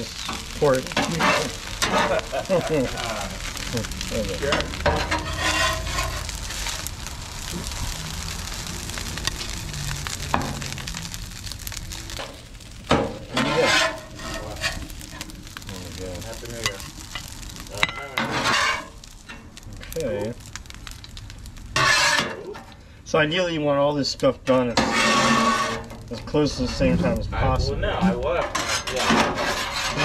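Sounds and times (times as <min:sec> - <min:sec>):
fried rice sizzling on a griddle: 0:00.0 - 0:30.0
metal spatula scraping steel: 0:00.9 - 0:02.1, 0:04.4 - 0:06.3, 0:13.3 - 0:14.9, 0:18.1 - 0:19.4, 0:21.8 - 0:22.4, 0:24.7 - 0:25.9, 0:28.4 - 0:30.0.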